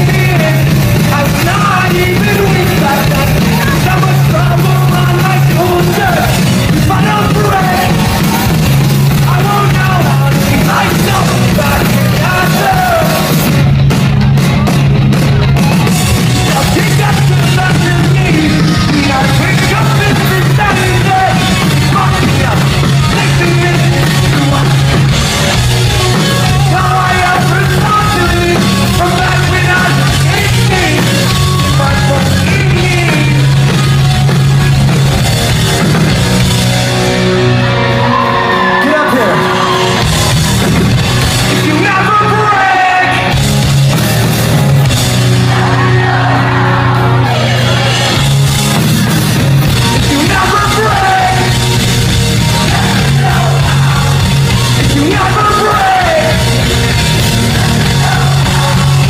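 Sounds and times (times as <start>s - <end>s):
person singing: 0.0s - 8.4s, 9.2s - 13.4s, 16.5s - 33.9s, 49.8s - 51.8s, 52.4s - 59.0s
live pop-punk band: 0.0s - 59.0s.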